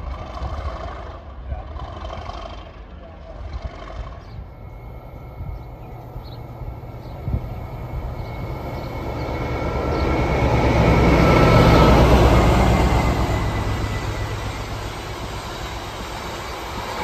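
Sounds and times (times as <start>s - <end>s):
diesel locomotive engine: 0.0s - 17.0s
train wheels on rails: 3.4s - 17.0s.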